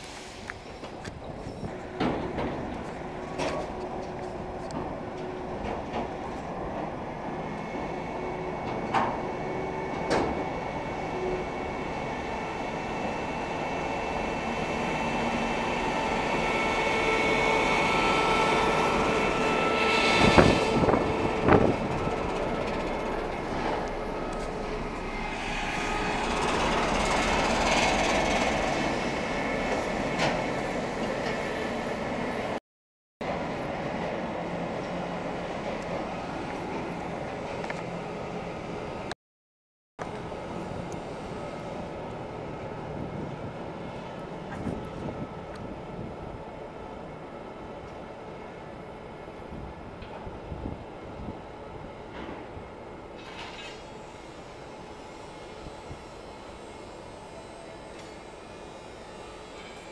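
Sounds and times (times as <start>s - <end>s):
diesel locomotive rumble: 0.0s - 32.6s.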